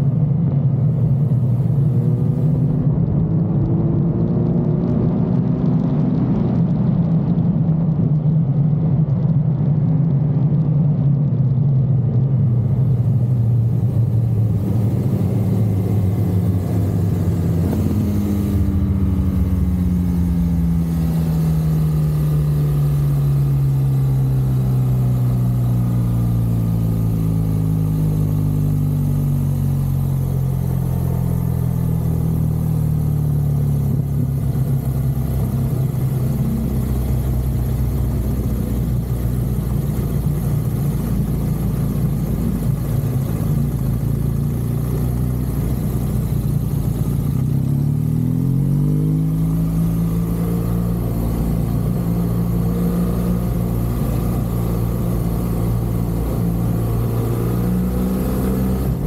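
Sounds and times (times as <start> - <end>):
wind and road noise: 0.0 - 59.0
motorcycle engine running: 11.9 - 59.0.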